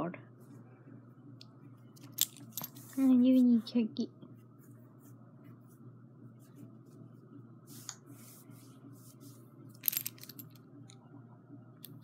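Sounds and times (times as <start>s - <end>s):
hand rustling dog's fur: 7.7s - 9.4s.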